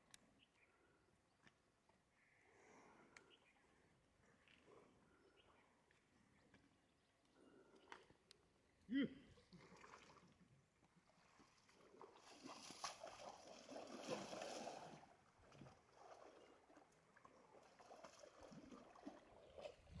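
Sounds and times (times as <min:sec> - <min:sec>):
muddy water sloshing and gurgling: 0:09.3 - 0:20.0.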